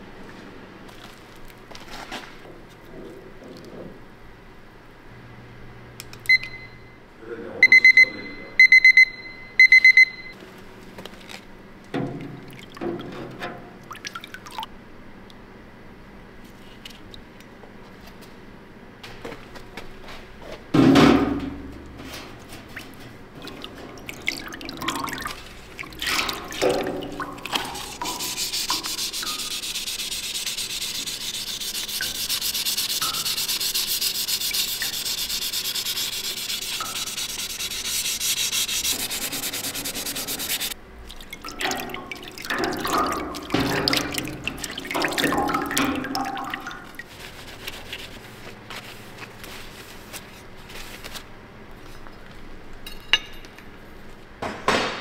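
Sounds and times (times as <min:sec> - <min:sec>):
liquid splashing and dripping: 0:12.0 - 0:14.7, 0:22.8 - 0:29.4, 0:41.0 - 0:47.3
sponge scrubbing metal: 0:26.1 - 0:40.8.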